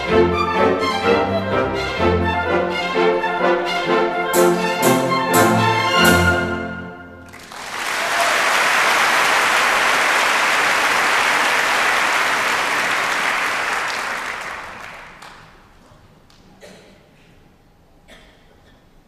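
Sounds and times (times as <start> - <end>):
audience applauding: 7.2 - 15.8.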